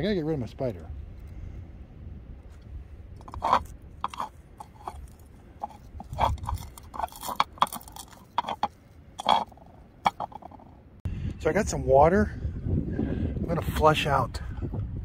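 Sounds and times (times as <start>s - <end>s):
brush scrubbing plastic funnel: 3.2s - 10.6s.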